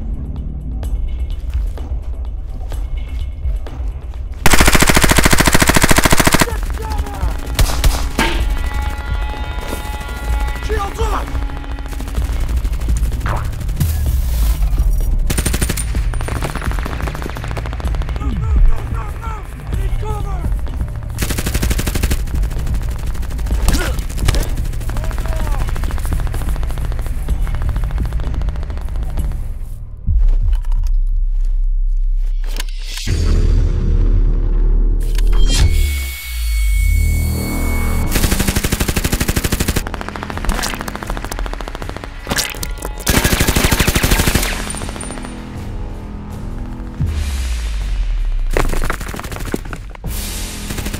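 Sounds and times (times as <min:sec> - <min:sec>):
machine-gun fire bursts: 0:04.4 - 0:08.2, 0:09.9 - 0:14.1, 0:15.3 - 0:18.4, 0:21.1 - 0:29.5, 0:38.1 - 0:45.5, 0:48.5 - 0:50.9
rapid automatic gunfire: 0:04.4 - 0:08.2, 0:09.8 - 0:14.0, 0:15.3 - 0:18.4, 0:21.2 - 0:29.6, 0:38.1 - 0:45.5, 0:48.6 - 0:50.0, 0:50.6 - 0:50.9.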